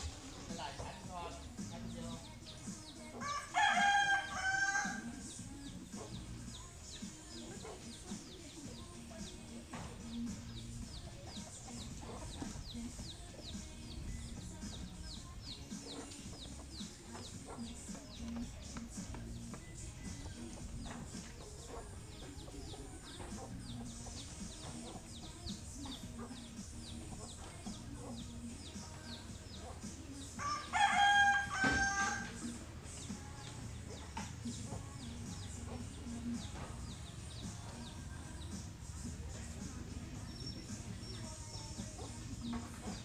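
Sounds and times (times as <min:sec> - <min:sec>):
faint high chirping: 0:01.3 - 0:43.0
rooster crowing: 0:03.2 - 0:05.1, 0:30.4 - 0:32.5.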